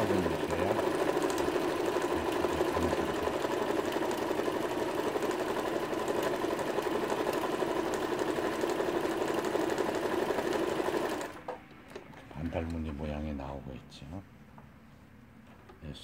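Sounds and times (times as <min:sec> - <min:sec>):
sewing machine running: 0:00.0 - 0:11.5.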